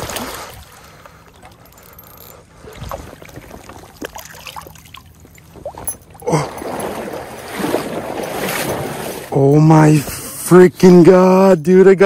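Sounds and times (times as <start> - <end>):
water dripping: 0.0 - 7.6
river water splashing: 0.0 - 10.4.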